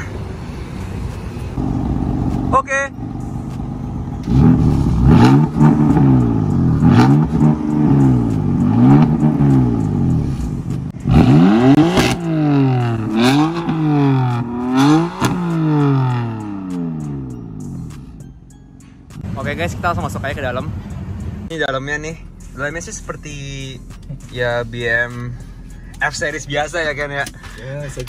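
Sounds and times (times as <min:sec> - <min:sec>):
car engine revving: 0:01.5 - 0:18.2
exhaust crack: 0:01.6 - 0:18.1.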